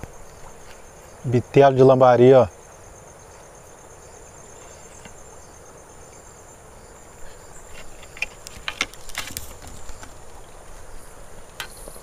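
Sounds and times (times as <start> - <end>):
insects trilling: 0.0 - 12.0
handling clicks and knocks: 7.8 - 10.2.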